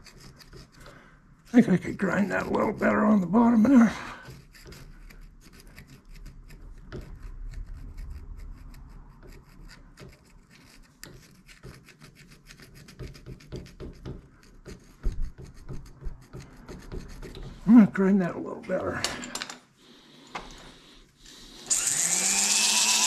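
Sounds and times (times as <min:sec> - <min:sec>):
file rasping on steel: 0:00.0 - 0:00.9, 0:02.0 - 0:18.0.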